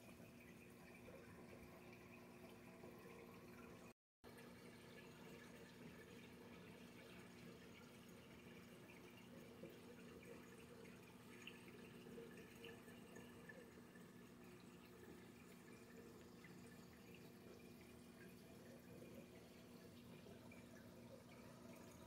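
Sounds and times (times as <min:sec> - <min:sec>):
aquarium low hum: 0:00.0 - 0:22.0
water trickling and dripping: 0:00.0 - 0:22.0.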